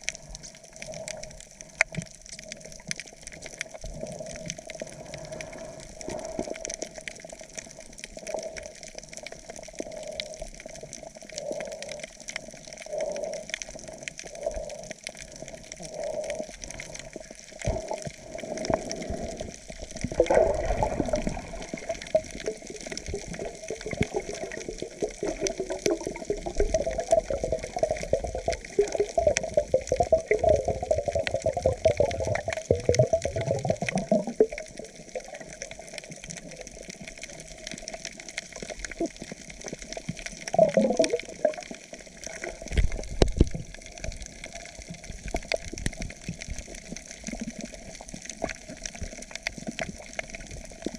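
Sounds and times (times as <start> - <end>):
muffled underwater churning: 0.0 - 50.9
small underwater clicks: 0.0 - 50.9.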